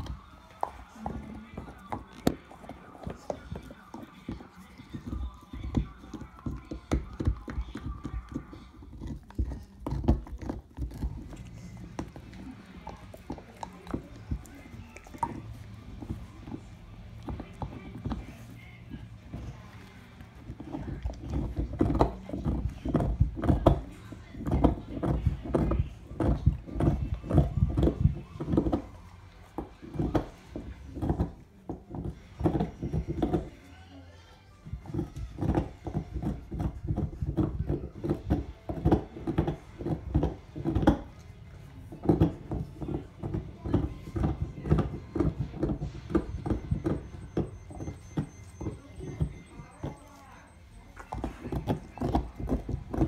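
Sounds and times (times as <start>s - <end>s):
dog gnawing on antler: 0.0s - 53.0s.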